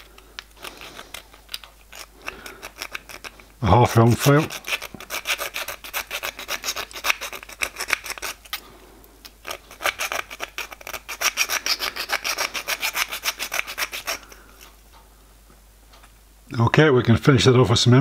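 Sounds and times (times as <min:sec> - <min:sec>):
file rasping on metal: 0:04.1 - 0:08.5, 0:09.4 - 0:14.4.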